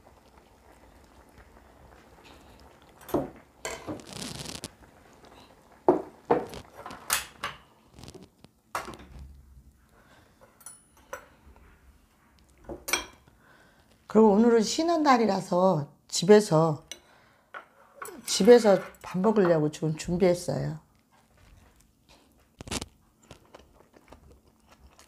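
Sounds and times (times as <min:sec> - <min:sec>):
tableware clinking on pot and bowls: 0:03.0 - 0:04.0, 0:10.6 - 0:11.3, 0:12.8 - 0:13.2.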